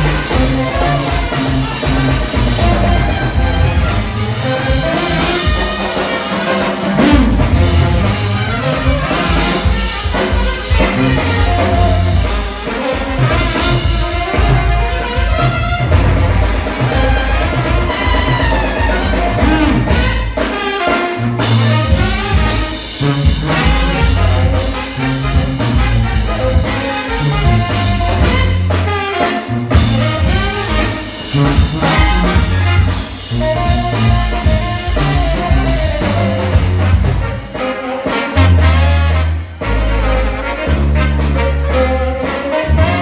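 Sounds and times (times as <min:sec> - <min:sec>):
sousaphone bass notes: 0:00.0 - 0:06.0, 0:06.7 - 0:12.6, 0:13.2 - 0:20.2, 0:31.4 - 0:37.4, 0:38.4 - 0:43.0
drum kit: 0:00.0 - 0:43.0
saxophone: 0:00.0 - 0:43.0
trombone: 0:00.0 - 0:43.0
trumpets: 0:00.0 - 0:43.0.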